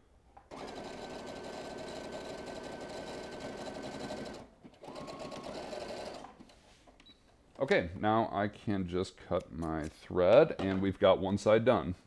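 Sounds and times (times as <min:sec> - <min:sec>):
sewing machine stitching: 0:00.5 - 0:06.4.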